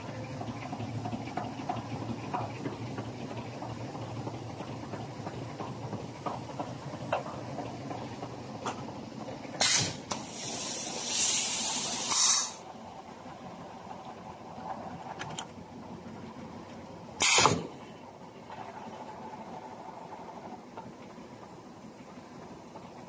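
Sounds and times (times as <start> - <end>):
machine running noise: 0.0 - 16.4
compressed air hissing: 9.6 - 12.6, 17.2 - 17.6.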